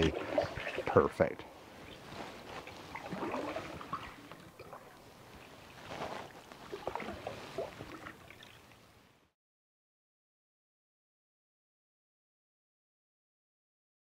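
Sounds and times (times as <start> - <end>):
canoe paddle swishing through water: 0.0 - 9.2.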